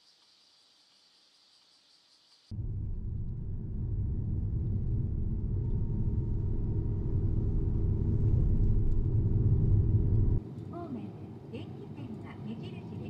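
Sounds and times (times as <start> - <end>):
car road and engine rumble: 2.6 - 11.0.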